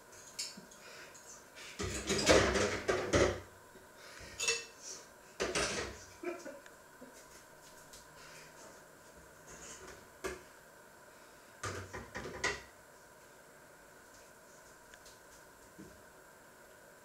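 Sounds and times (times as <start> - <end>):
dishes and utensils clattering: 1.8 - 3.4, 4.3 - 4.8, 5.4 - 6.0.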